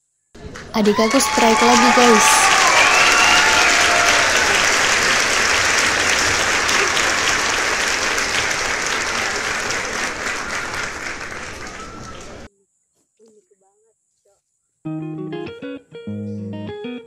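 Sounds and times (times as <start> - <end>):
crowd applauding: 0.4 - 12.5.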